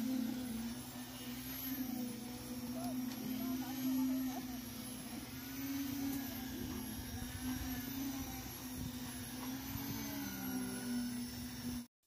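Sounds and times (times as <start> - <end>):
concrete pump machinery drone: 0.0 - 11.9.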